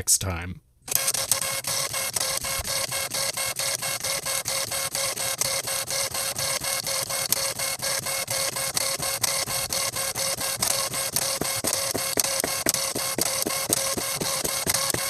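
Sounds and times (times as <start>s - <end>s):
dot-matrix printer rasping buzz: 0.9s - 15.0s.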